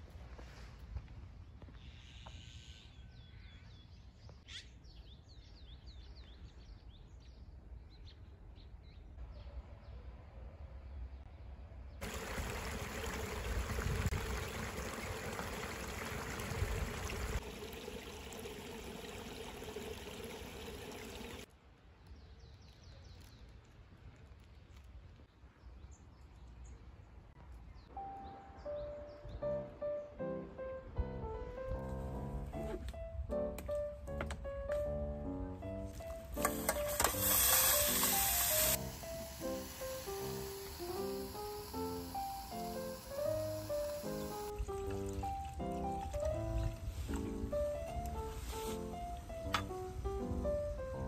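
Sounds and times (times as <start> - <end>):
faint bird chirps: 1.7 - 3.7, 4.3 - 7.0
rush of water: 12.0 - 21.5
stream trickling over rocks: 12.0 - 21.5, 36.3 - 47.3.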